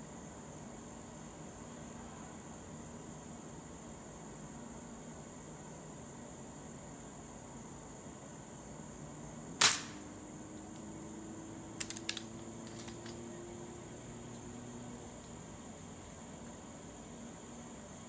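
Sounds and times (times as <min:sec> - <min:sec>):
insect chirring: 0:07.7 - 0:18.0
metallic clicks of cocking: 0:09.6 - 0:10.0, 0:11.8 - 0:13.2
air pistol shot: 0:09.6 - 0:10.1.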